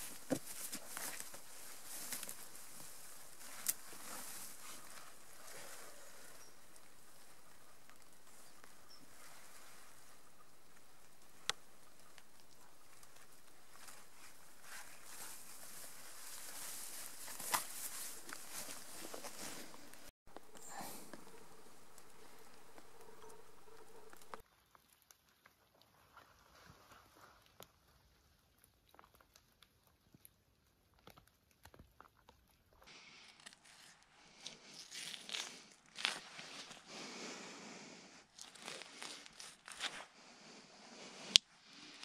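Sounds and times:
footsteps through undergrowth: 0.0s - 24.4s, 32.9s - 37.5s, 38.2s - 42.0s
rustling of grass and clothing: 0.0s - 24.4s, 32.9s - 42.0s.

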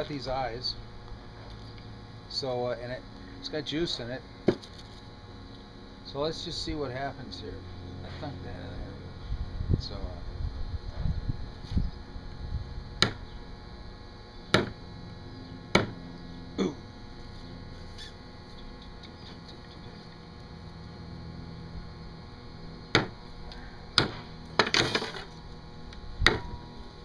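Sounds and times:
hatchet spike knocking into coconut: 13.0s - 13.2s, 14.5s - 14.8s, 15.7s - 16.0s, 22.9s - 23.2s, 24.0s - 24.8s, 26.2s - 26.5s.

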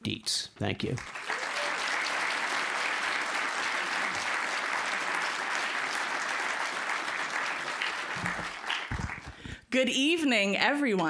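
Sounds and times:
audience applauding: 0.9s - 9.6s.

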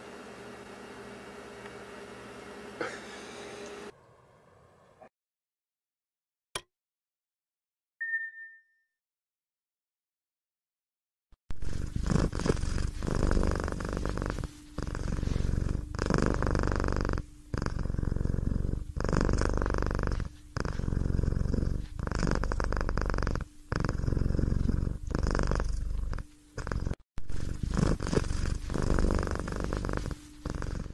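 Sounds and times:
cat purring: 11.6s - 30.9s.

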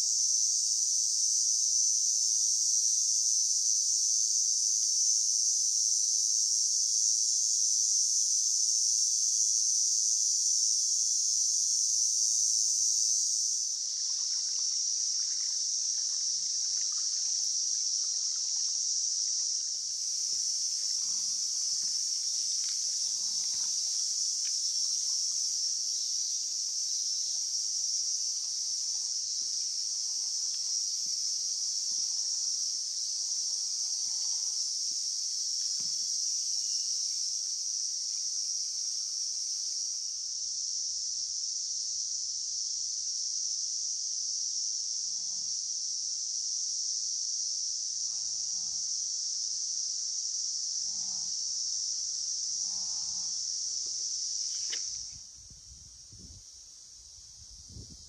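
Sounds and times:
high-pitched insects chorus: 0.0s - 58.0s
stream trickling: 13.7s - 25.8s, 54.4s - 55.2s.

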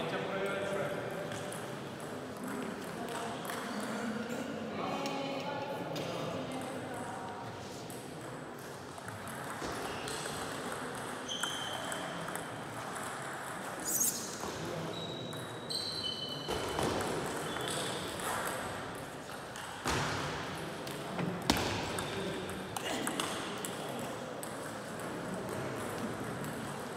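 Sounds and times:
sports hall room background: 0.0s - 26.9s
table tennis balls clicking: 8.0s - 13.9s, 16.8s - 19.9s, 20.8s - 26.9s.

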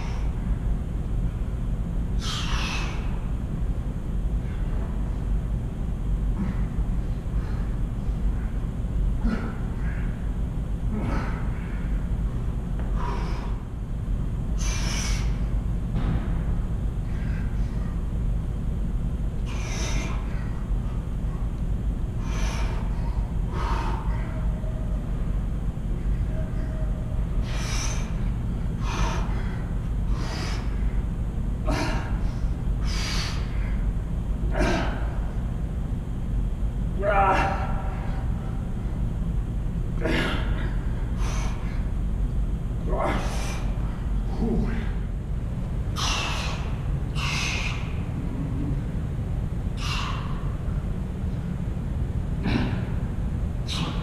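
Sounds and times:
steady low hum: 0.0s - 54.0s
man exhaling forcefully: 2.2s - 3.2s, 46.0s - 48.8s, 49.8s - 50.6s, 52.4s - 53.1s
man breathing out hard: 2.2s - 3.3s, 6.3s - 12.2s, 12.8s - 13.8s, 19.4s - 21.3s, 22.1s - 24.7s, 25.8s - 33.9s, 45.9s - 48.9s, 49.8s - 50.9s
low rumble: 37.9s - 54.0s.

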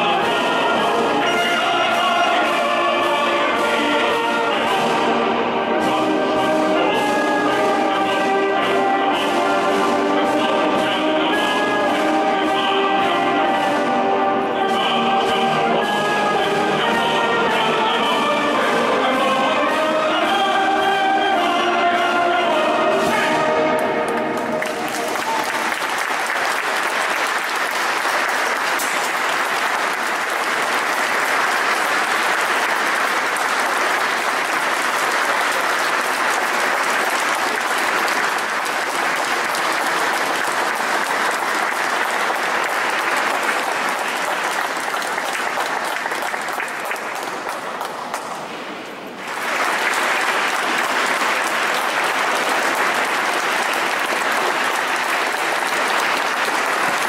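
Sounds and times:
audience applauding: 23.0s - 57.0s.

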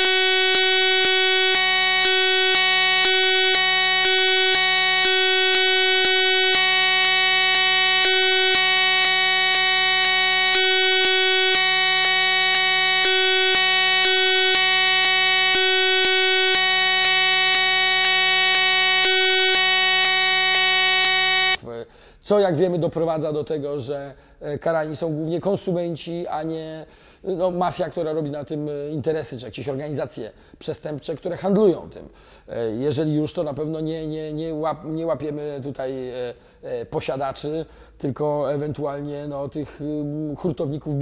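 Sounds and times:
electronic buzz tone: 0.0s - 21.6s.

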